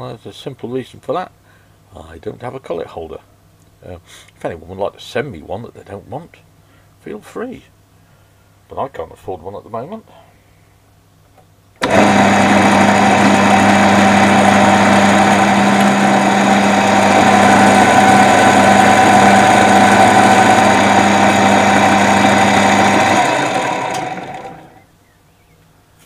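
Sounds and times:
end mill cutting metal: 11.8s - 24.8s
milling machine motor humming: 11.8s - 24.8s.

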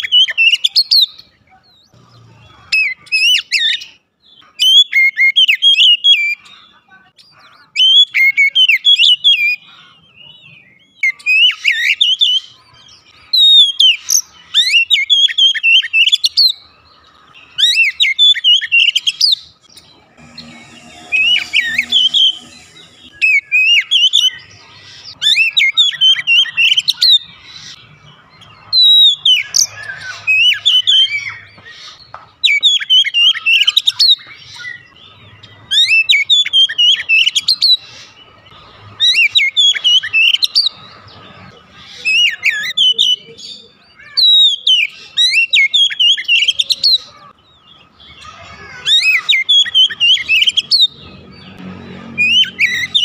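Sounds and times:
bird singing whistles and trills: 42.0s - 47.1s.

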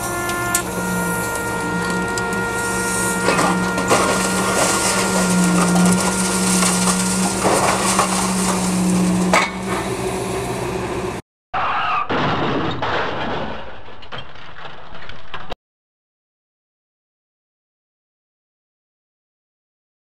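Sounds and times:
engine and hydraulic hum: 0.0s - 11.2s
scrap metal clanking: 0.5s - 10.0s.

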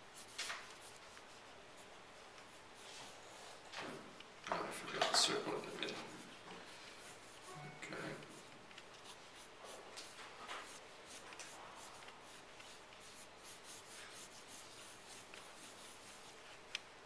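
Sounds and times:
pencil scratching on paper: 5.3s - 16.5s.

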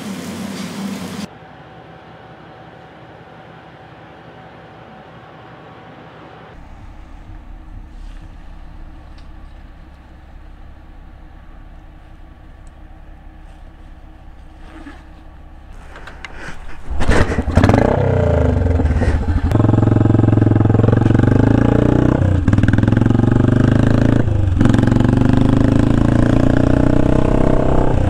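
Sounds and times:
motorcycle accelerating through gears: 6.6s - 28.0s.

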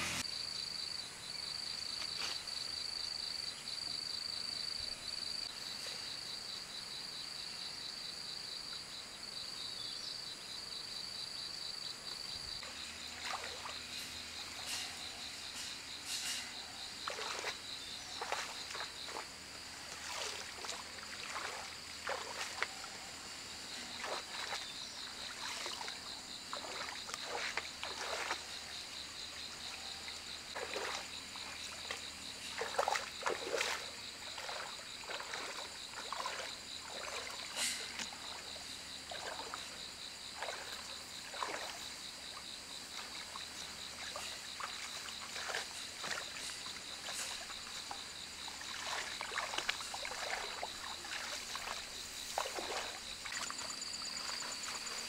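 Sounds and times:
insect drone: 0.0s - 55.0s
wet splashing and swishing: 17.0s - 19.3s, 19.9s - 23.0s, 23.8s - 28.6s, 30.5s - 42.0s, 42.9s - 55.0s.

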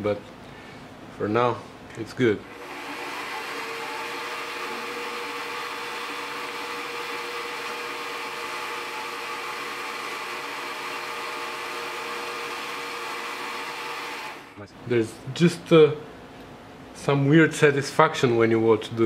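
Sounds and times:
metal lathe whining: 2.5s - 14.6s.

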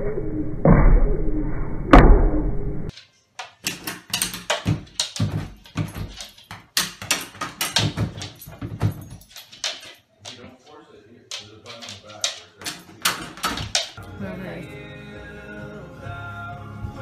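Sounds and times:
loud thump: 0.6s - 2.6s.

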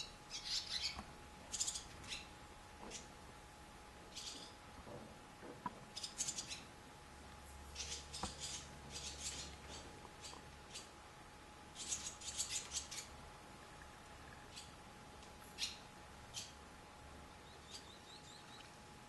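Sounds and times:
swallows chirping: 0.0s - 2.3s, 4.1s - 4.6s, 6.0s - 6.7s, 7.7s - 10.9s, 11.8s - 13.1s, 15.6s - 16.6s, 17.4s - 18.7s.

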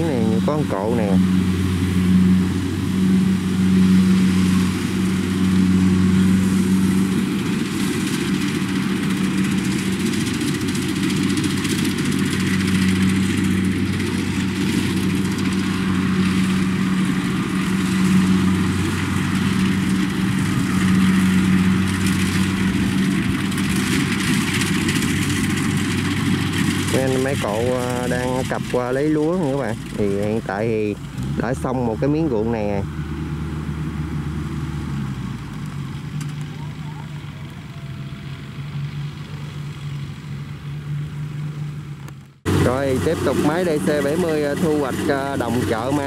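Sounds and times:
machinery clatter: 0.0s - 32.7s, 42.0s - 46.0s
diesel engine drone: 0.0s - 46.0s.

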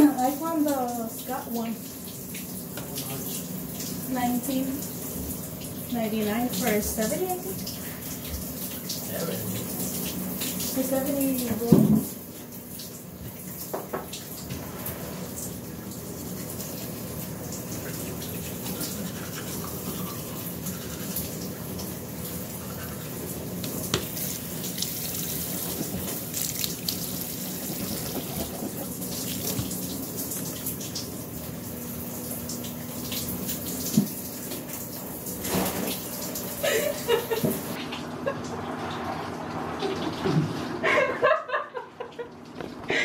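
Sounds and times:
shower water spraying: 0.0s - 42.3s.

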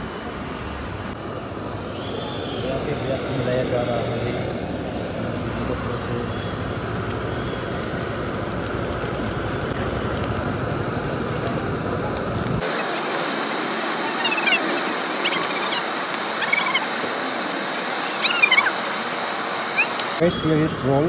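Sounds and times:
road traffic rumble: 0.0s - 21.0s
high squeaky chirps: 14.0s - 20.2s.

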